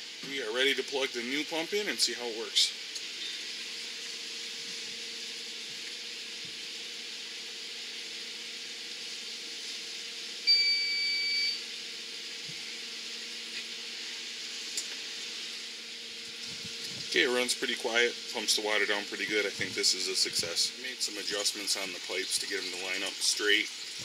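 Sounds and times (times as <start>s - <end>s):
high electronic beep: 10.5s - 11.6s.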